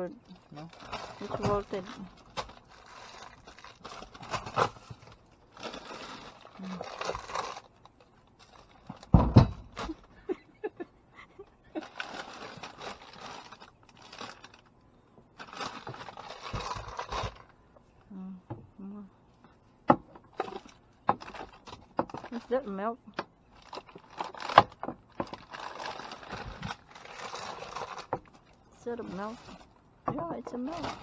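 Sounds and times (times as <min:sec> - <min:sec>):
plastic bags rustling: 0:00.2 - 0:10.4, 0:11.7 - 0:14.7, 0:15.3 - 0:17.6, 0:20.3 - 0:22.8, 0:23.5 - 0:31.0
loud thump: 0:09.1 - 0:09.7.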